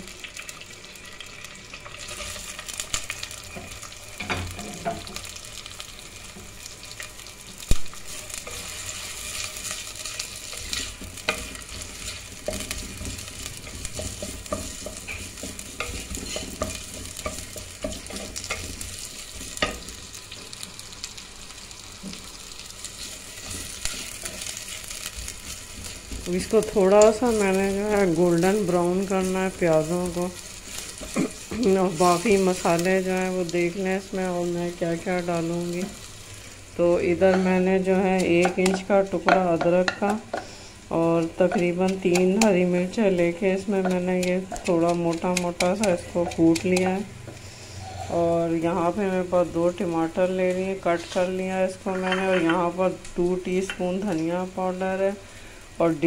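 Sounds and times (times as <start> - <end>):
onions sizzling in hot oil: 0.0 - 56.0
wooden spoon clacking on pot: 12.4 - 18.8, 38.2 - 40.4, 43.8 - 47.0.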